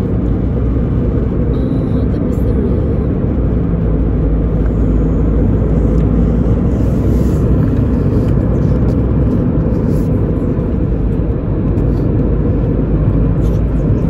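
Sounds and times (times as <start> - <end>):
car engine and road noise: 0.0 - 14.0.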